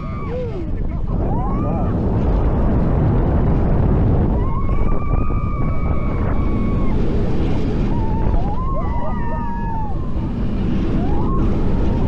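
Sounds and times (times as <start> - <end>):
rising yells: 0.0 - 2.2, 4.2 - 12.0
roller coaster train rumble: 0.0 - 12.0
wind rushing over microphone: 0.0 - 12.0
rider screaming: 4.3 - 12.0.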